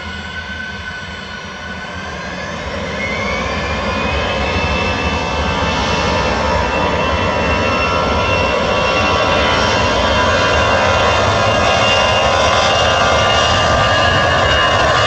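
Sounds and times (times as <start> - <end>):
jet engine whine spooling up: 0.0 - 15.0
low jet rumble: 0.0 - 15.0.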